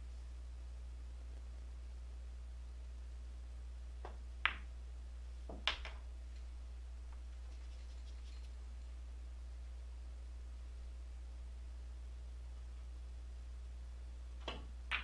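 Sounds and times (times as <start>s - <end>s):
pool balls clicking: 5.5s - 6.0s, 14.4s - 15.0s.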